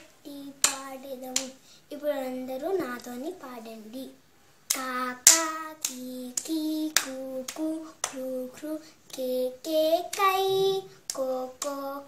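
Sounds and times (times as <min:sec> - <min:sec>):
girl singing vowels: 0:00.0 - 0:12.0
hands clapping: 0:04.7 - 0:08.3, 0:11.1 - 0:11.9.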